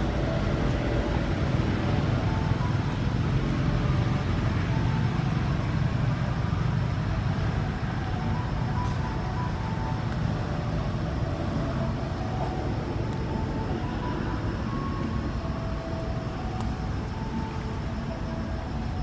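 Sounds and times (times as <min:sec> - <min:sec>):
low rumbling background noise: 0:00.0 - 0:19.0.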